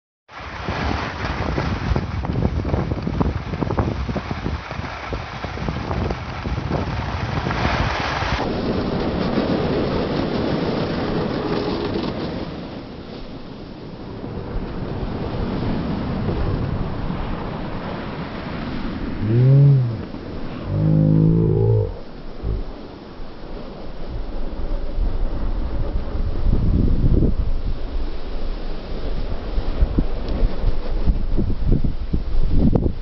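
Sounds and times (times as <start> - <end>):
skis scraping snow: 0.4 - 12.6
wind on microphone: 0.4 - 33.0.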